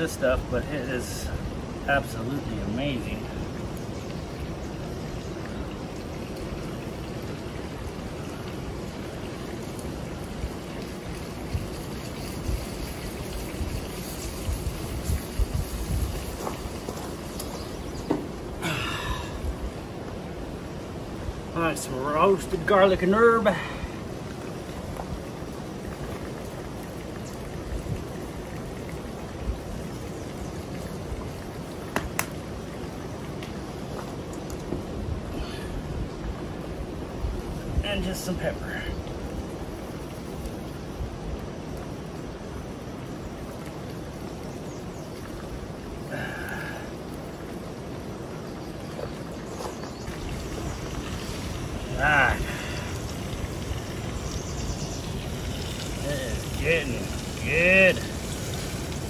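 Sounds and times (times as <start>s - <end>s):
low wind rumble on microphone: 0.4s - 21.6s
fish sizzling in pan: 9.6s - 18.4s, 50.1s - 59.0s.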